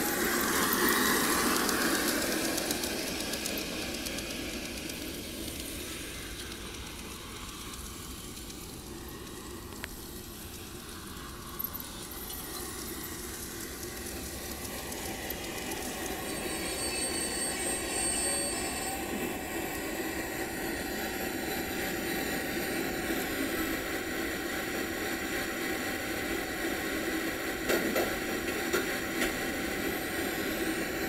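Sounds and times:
high motor whine: 0.0 - 27.6
model train wheels on rails: 0.0 - 31.0.

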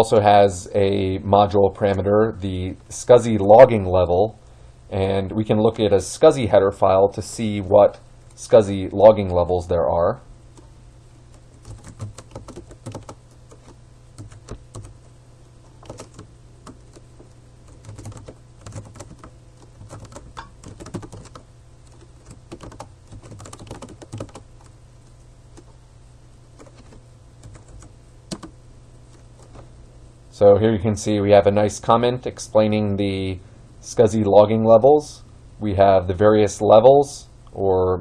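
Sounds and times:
steady low hum: 0.0 - 38.0
keyboard keystroke clicks: 26.6 - 28.5.

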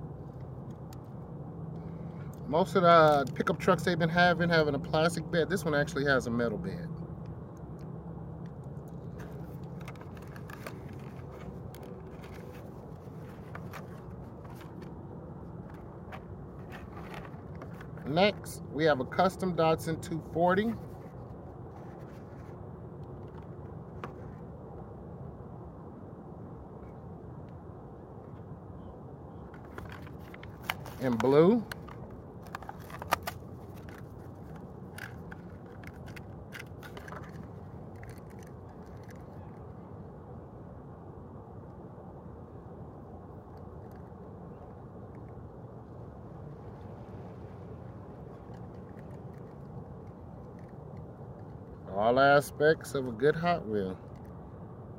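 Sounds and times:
low background noise: 0.0 - 54.9
low outdoor rumble: 0.0 - 54.9
plastic packaging clicks and crackles: 29.6 - 39.2.

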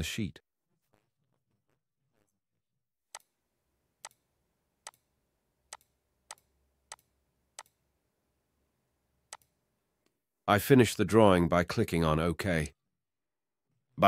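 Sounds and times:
computer mouse clicks: 4.0 - 4.2, 4.8 - 5.1, 5.7 - 7.8, 9.3 - 10.2.

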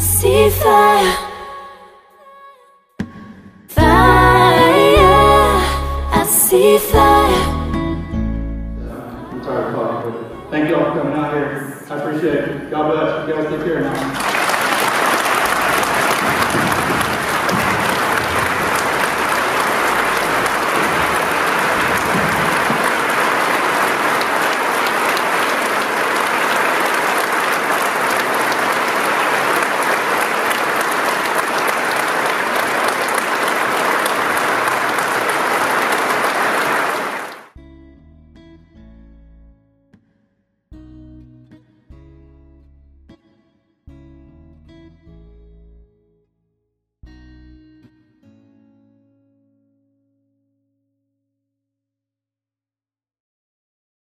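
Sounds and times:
faint guitar music: 3.8 - 11.4, 37.6 - 46.2, 47.0 - 50.5
audience applauding: 13.8 - 37.6.

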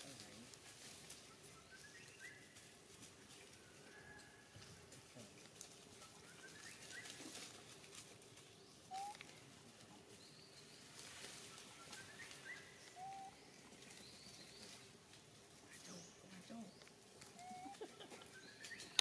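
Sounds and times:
faint outdoor ambience: 0.0 - 19.0
rising whistled animal calls: 8.9 - 9.2, 11.5 - 13.4, 17.4 - 17.9.

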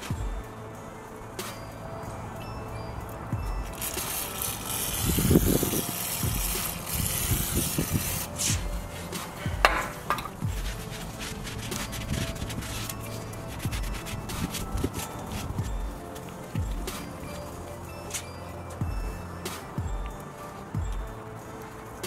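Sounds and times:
rag rubbing metal hub: 3.6 - 19.8
aerosol spray hissing: 3.7 - 18.4.

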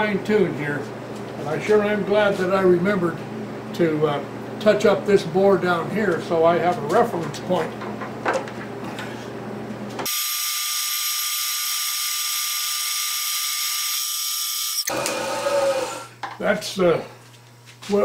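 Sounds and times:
milling machine hum: 11.8 - 16.1.

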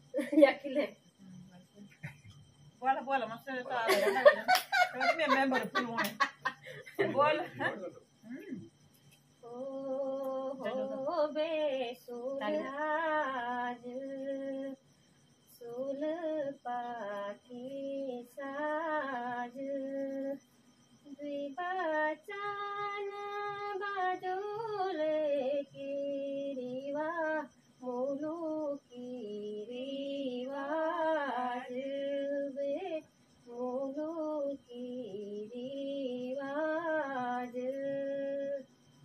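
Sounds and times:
woman singing unaccompanied: 9.4 - 14.8, 15.5 - 38.7.

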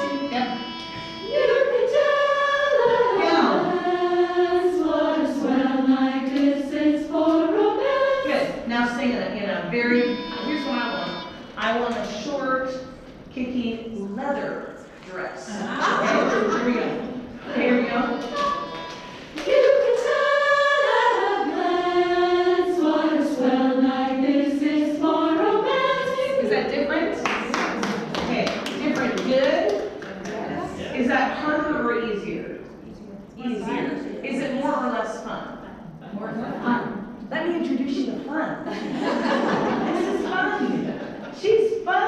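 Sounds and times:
choir singing: 0.0 - 8.9, 9.9 - 11.6, 15.6 - 28.0.

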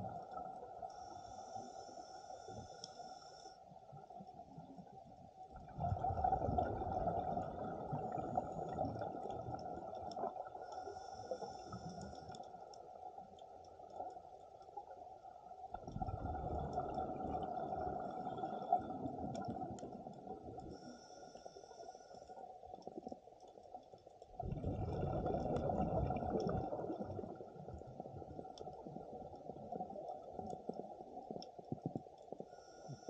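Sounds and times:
underwater exhaled bubbles rumbling: 5.5 - 10.6, 15.7 - 20.8, 24.3 - 32.4.

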